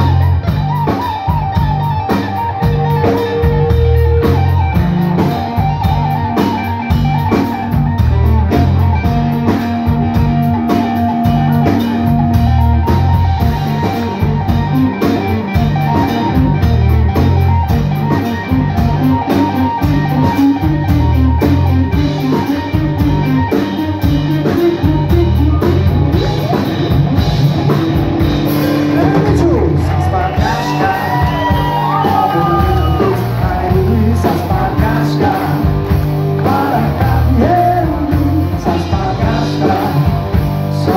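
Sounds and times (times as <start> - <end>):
drum kit beat: 0.0 - 40.9
electric guitar: 0.0 - 40.9
person singing: 28.8 - 40.9.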